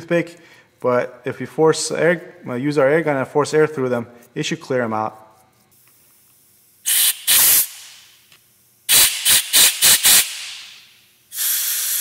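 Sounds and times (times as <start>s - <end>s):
air blow gun hissing bursts: 6.8s - 8.1s, 8.9s - 12.0s.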